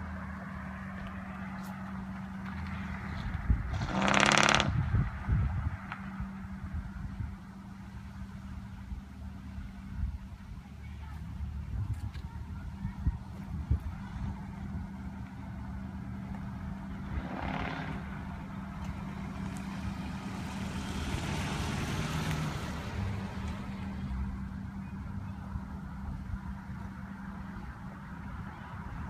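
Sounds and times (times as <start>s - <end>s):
car driving past: 15.9s - 24.4s.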